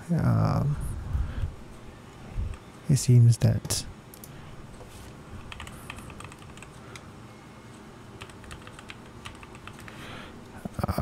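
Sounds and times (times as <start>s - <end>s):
computer keyboard typing: 5.4s - 7.0s, 8.2s - 10.0s.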